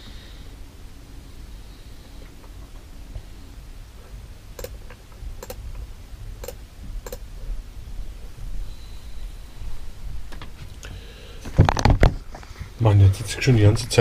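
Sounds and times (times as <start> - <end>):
computer mouse clicking: 4.6 - 5.6, 6.4 - 7.2.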